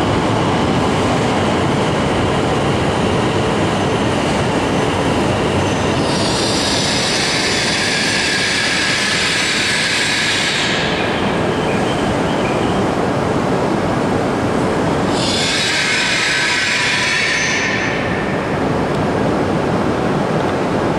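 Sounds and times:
train wheels rumbling: 0.0 - 20.8
high-pitched hissing squeal: 5.7 - 11.0, 15.1 - 18.0.

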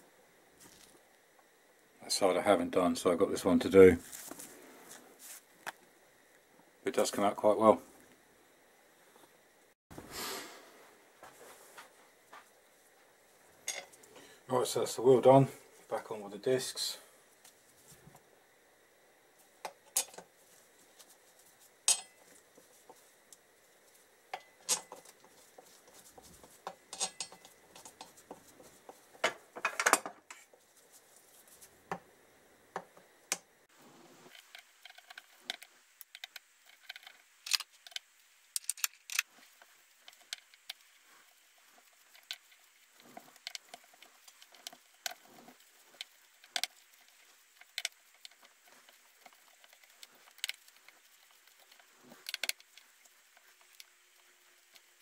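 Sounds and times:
bolts clinking on metal: 24.4 - 25.0, 26.9 - 27.5.

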